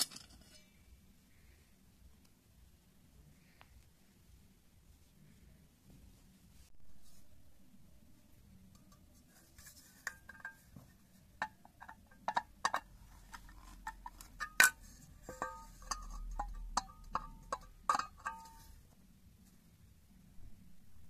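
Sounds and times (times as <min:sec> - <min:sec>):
screwdriver tapping metal bowl: 0:10.0 - 0:10.7, 0:11.4 - 0:18.8.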